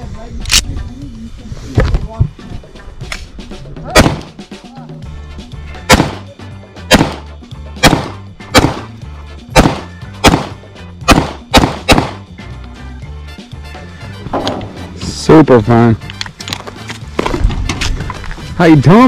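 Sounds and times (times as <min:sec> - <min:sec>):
background music: 0:00.0 - 0:19.0
pistol shots: 0:04.0 - 0:04.4, 0:05.9 - 0:08.9, 0:09.5 - 0:12.3.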